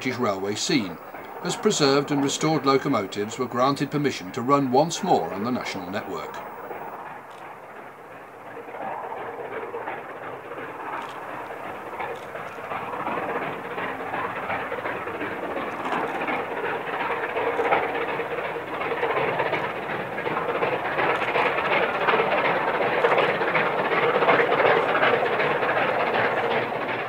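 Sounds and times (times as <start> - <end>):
rolling stock noise: 0.0 - 27.0
steam locomotive exhaust beats: 0.0 - 27.0.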